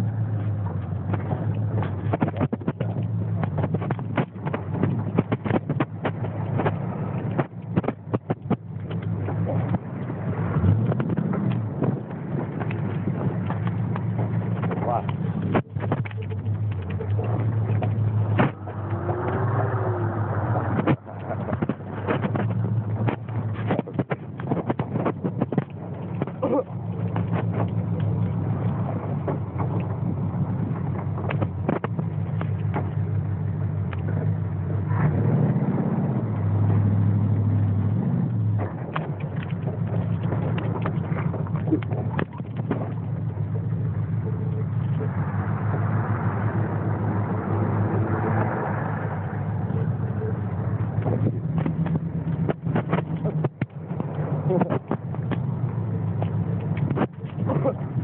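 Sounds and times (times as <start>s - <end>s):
vehicle engine revving: 0.0s - 58.0s
knocks and rattles from bumps: 0.3s - 19.5s, 20.4s - 34.4s.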